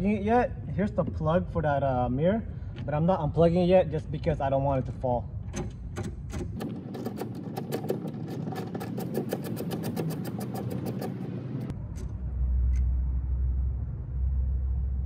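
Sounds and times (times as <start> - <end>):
steady low rumble: 0.0 - 15.0
ratchet wrench clicking: 5.6 - 12.1.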